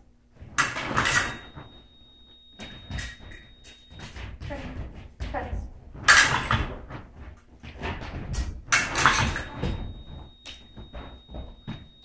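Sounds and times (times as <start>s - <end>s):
scoring machine high beep: 9.2s - 12.0s.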